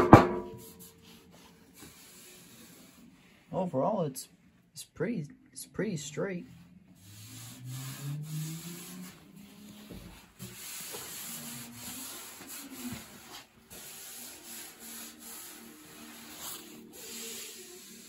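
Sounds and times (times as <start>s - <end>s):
hand rubbing over metal panel: 7.0s - 18.0s.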